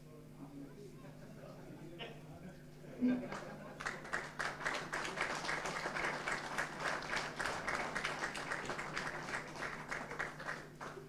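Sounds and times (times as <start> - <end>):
group applauding: 3.3 - 11.0.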